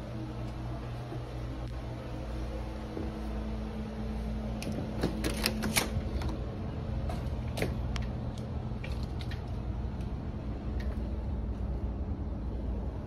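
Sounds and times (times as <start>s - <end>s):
steady low hum: 0.0s - 13.0s
door lock clicking and rattling: 4.6s - 6.4s.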